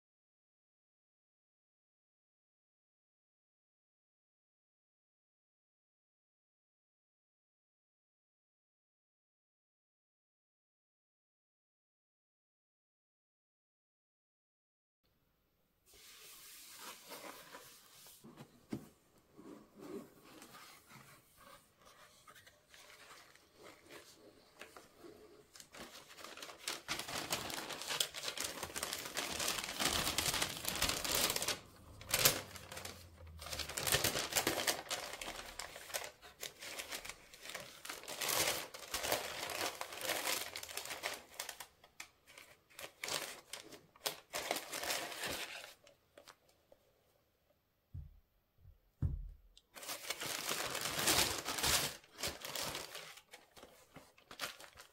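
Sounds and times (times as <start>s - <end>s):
packaging crinkling and tearing: 25.6s - 45.8s, 49.8s - 54.9s.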